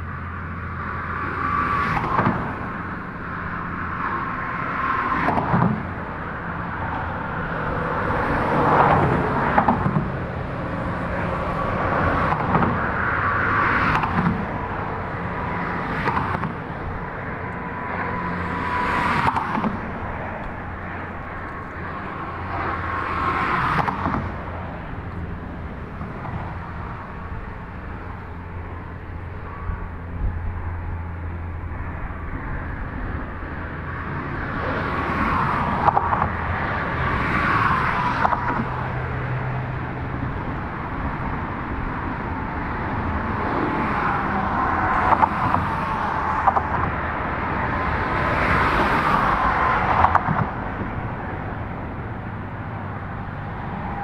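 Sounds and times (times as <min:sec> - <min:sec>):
steady low traffic rumble: 0:00.0 - 0:54.0
vehicles passing: 0:00.0 - 0:54.0.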